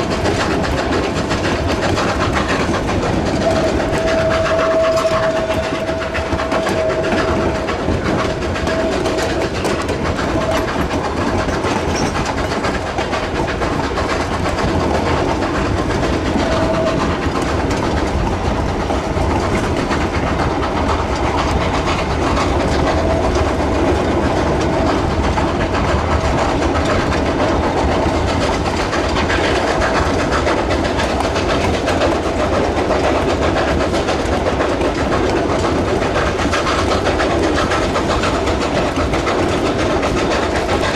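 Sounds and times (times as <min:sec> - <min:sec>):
train wheels clattering on rails: 0:00.0 - 0:40.9.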